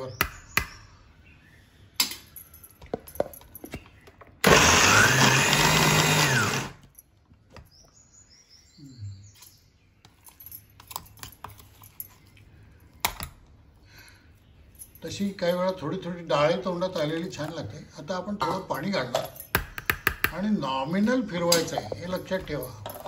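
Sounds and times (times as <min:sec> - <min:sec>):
mixer grinder motor: 0:04.4 - 0:06.8.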